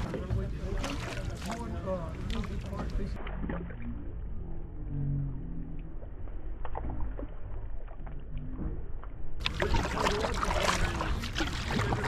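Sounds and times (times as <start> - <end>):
paddle splashing water: 0.0 - 4.2, 9.4 - 12.0
low water rumble: 0.0 - 12.0.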